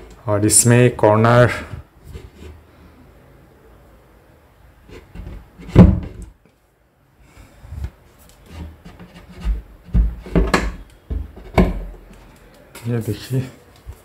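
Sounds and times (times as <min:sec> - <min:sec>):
wood rubbing: 0:08.3 - 0:13.3
wooden knocks: 0:08.9 - 0:12.0.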